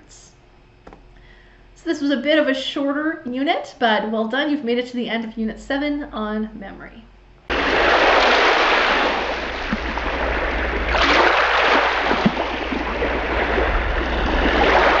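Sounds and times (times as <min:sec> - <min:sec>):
ocean waves washing in: 0:07.5 - 0:15.0.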